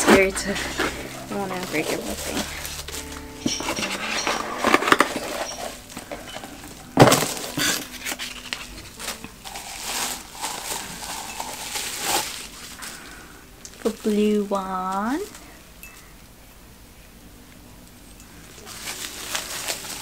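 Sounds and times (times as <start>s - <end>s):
ceramic cups clinking: 0.0s - 13.1s
bubble wrap rustling and crinkling: 0.0s - 15.8s, 18.3s - 20.0s.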